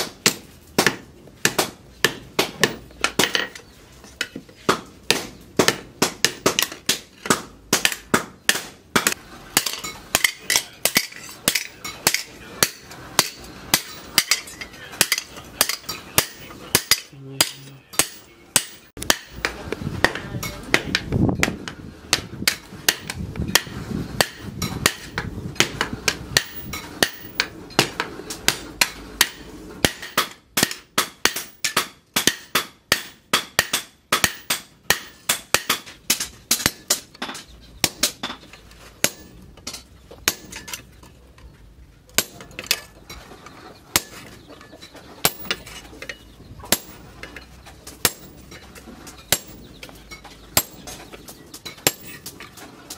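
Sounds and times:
hammer on hot-cut chisel: 4.7 - 37.0
hammer striking hot metal on anvil: 7.8 - 21.0, 22.1 - 37.0, 48.0 - 48.6, 50.6 - 51.0.

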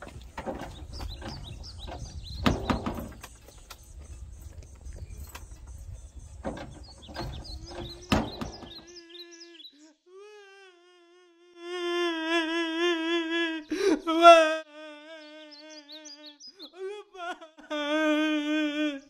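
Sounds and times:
scattered knocks: 0.0 - 3.9, 5.4 - 8.9
bird chirps: 0.0 - 10.0, 15.2 - 16.8
man wailing: 11.6 - 15.8, 16.7 - 19.0.

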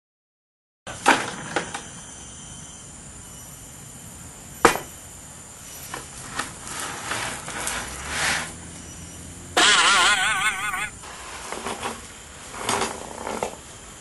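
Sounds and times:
steady hiss: 0.9 - 9.6, 10.9 - 14.0
sharp knock: 4.6 - 4.9
short scraping: 5.6 - 13.6.

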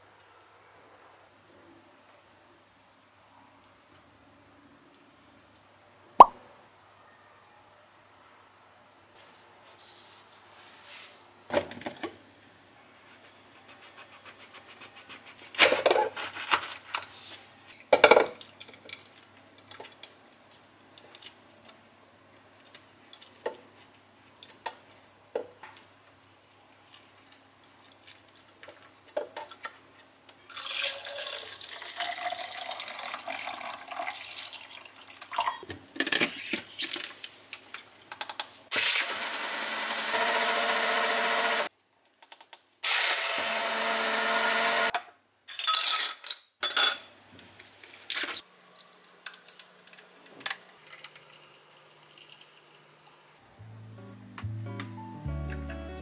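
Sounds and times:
tap water running: 30.5 - 35.4.

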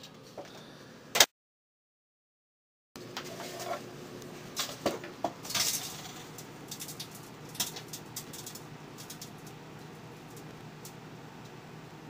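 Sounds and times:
disc arcing crackles: 3.0 - 12.0
microwave oven humming: 3.0 - 12.0.

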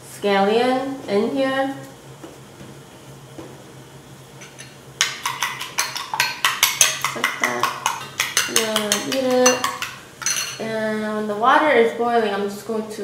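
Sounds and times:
metal spoon beating eggs in bowl: 4.4 - 10.7.

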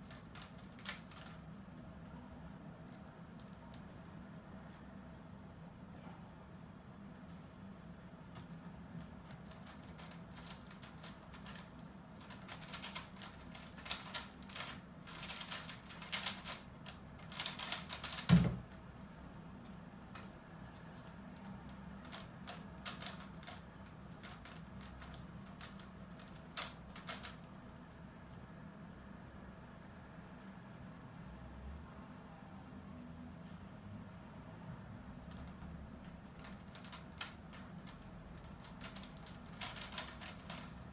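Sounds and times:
puzzle cube layers clacking: 9.4 - 18.6, 22.0 - 27.3, 38.6 - 40.8.

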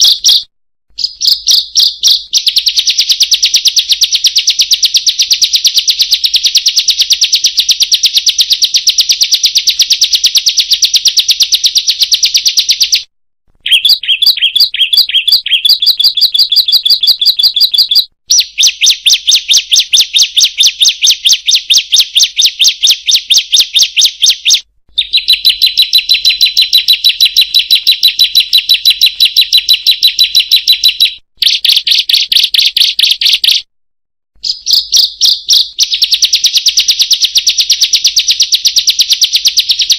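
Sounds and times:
bird calling sharp notes: 0.0 - 6.3, 11.7 - 33.7, 34.4 - 37.5.

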